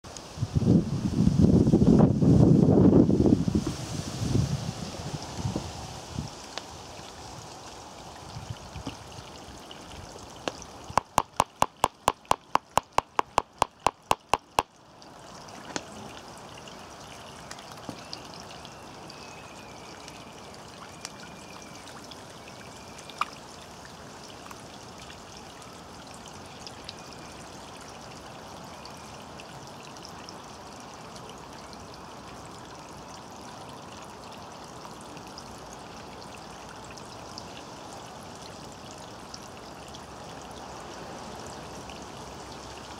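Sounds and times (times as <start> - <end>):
trickling pond water: 0.0 - 42.9
sharp clicks: 11.0 - 14.7.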